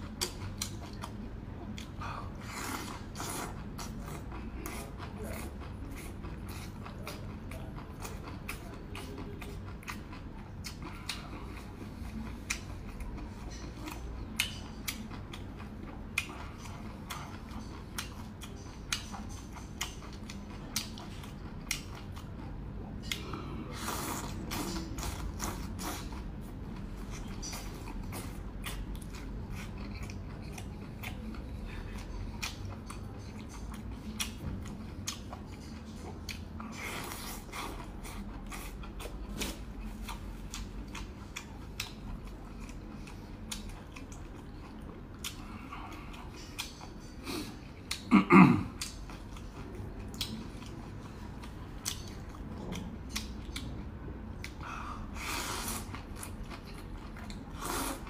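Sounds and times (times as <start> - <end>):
person chewing: 0.0 - 58.0
slurping noodles: 57.6 - 58.0.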